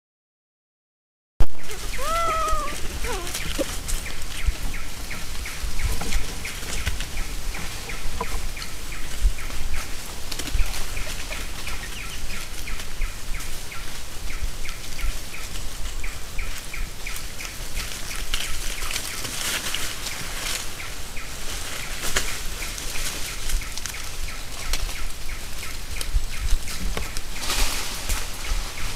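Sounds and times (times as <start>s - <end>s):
rustling of dry leaf litter: 1.5s - 28.9s.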